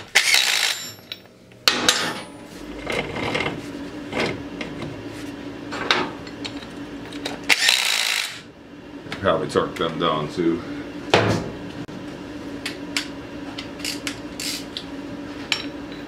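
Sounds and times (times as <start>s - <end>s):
cordless power driver running: 7.1s - 8.5s.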